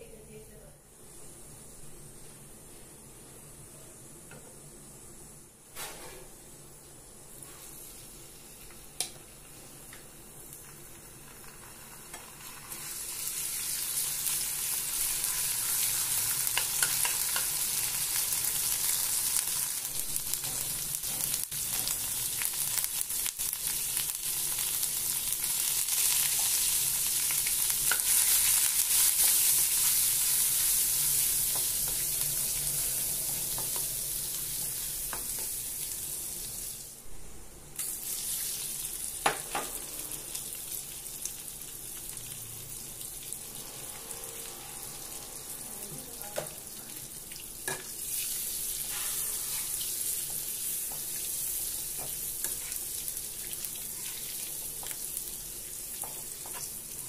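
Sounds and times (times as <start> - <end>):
paste sizzling in hot oil: 7.2 - 37.0, 37.8 - 57.0
spatula stirring and scraping: 48.1 - 55.0.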